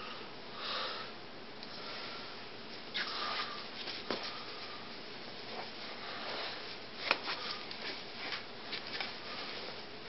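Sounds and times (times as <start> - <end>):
steady low hiss: 0.0 - 10.0
faint rustling of a puppet: 2.6 - 10.0.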